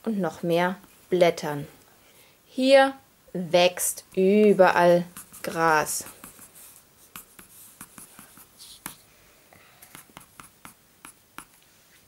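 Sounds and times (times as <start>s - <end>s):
pencil scratching on paper: 5.0s - 9.0s, 9.9s - 11.5s.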